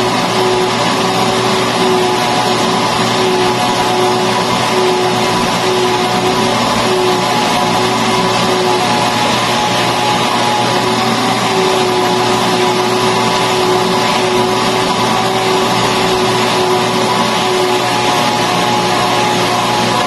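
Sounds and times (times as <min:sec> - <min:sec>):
vacuum cleaner running: 0:00.0 - 0:20.0.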